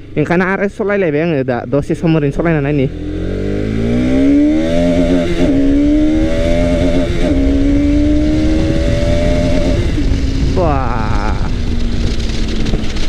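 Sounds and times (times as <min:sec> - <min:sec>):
motorcycle engine accelerating: 0:02.4 - 0:13.0
wind rumble on microphone: 0:02.9 - 0:13.0.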